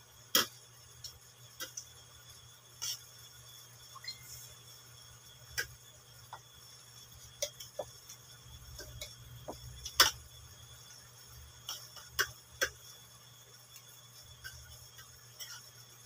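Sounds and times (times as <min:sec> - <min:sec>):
low steady hum: 0:01.9 - 0:16.0.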